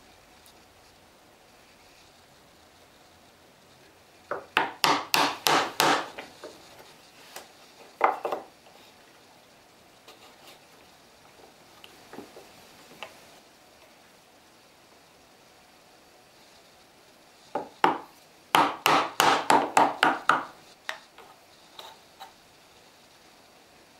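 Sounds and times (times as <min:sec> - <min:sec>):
chisel cutting wood: 0:04.6 - 0:06.2.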